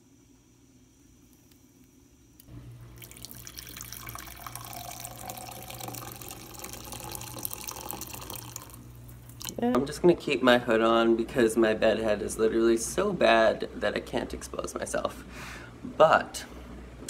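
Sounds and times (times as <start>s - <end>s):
coffee pouring into a mug: 2.8s - 9.6s.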